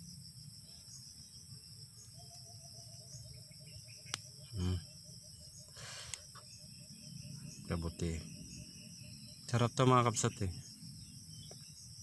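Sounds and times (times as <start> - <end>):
crickets chirping: 0.0 - 12.0
low insect trill: 0.0 - 12.0.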